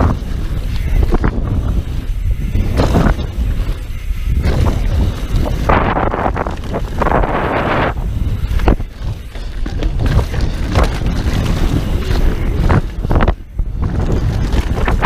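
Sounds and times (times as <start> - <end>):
bike clattering over bumps: 0.0 - 15.0
tyres scrubbing over loose dirt: 0.0 - 15.0
wind buffeting microphone: 0.0 - 15.0.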